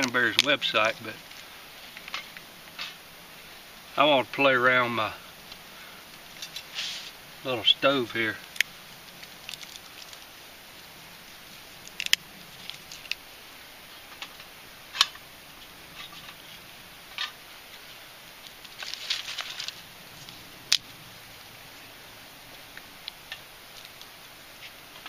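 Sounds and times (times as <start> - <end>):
dry sticks crackling and snapping: 0.0 - 3.0, 8.1 - 13.3, 14.0 - 21.0, 22.5 - 25.0.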